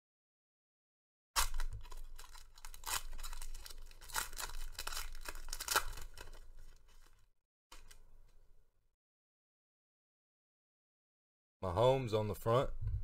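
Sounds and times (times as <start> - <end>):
foil wrapper tearing and crinkling: 1.4 - 8.0.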